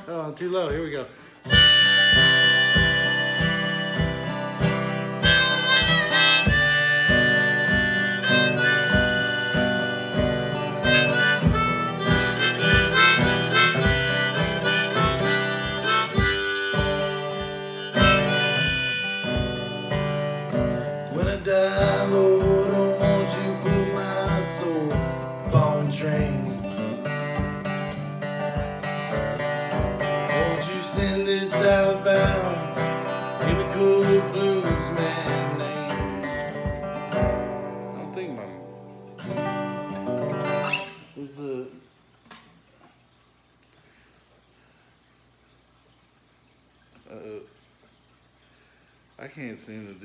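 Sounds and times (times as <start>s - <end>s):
strummed acoustic guitar: 0.0s - 42.4s
harmonica melody: 1.4s - 38.0s.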